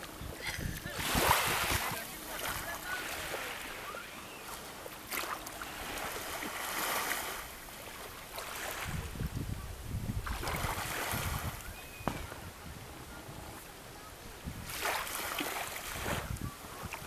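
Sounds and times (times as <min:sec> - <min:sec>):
wind on microphone: 0:00.0 - 0:04.8, 0:05.6 - 0:17.0
sea water lapping and splashing: 0:00.0 - 0:17.0.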